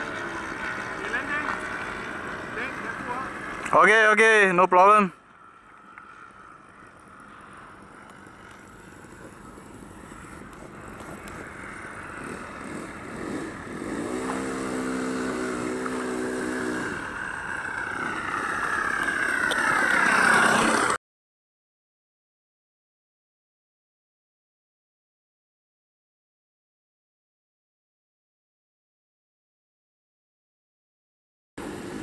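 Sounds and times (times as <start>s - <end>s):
model plane engine and propeller: 0.0s - 21.0s, 31.6s - 32.0s.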